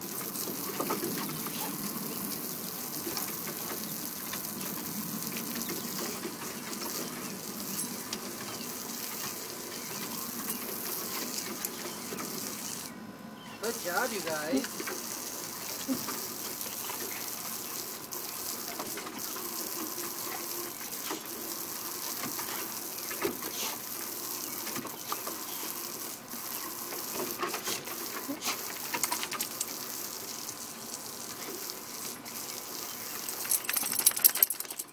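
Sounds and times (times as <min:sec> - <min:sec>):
garden hose spray hissing: 0:00.0 - 0:13.0, 0:13.6 - 0:34.9.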